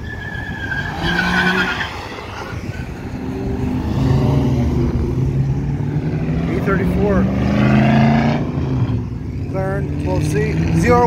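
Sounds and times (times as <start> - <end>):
tire squeal: 0.0 - 4.3
car engine driving past: 0.9 - 11.0.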